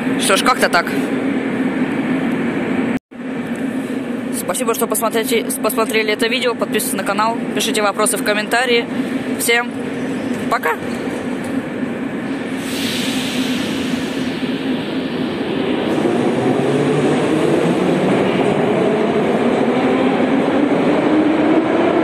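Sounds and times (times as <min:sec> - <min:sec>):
train running rumble: 0:00.0 - 0:22.0
train air hiss: 0:12.2 - 0:16.1.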